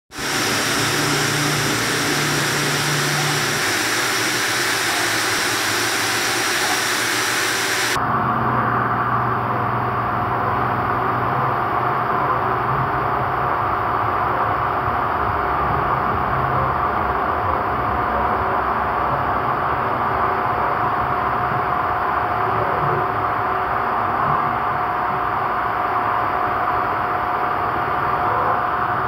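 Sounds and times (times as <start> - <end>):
heat gun blowing hot air: 0.1 - 8.0
steady rushing noise with hum: 0.1 - 12.7.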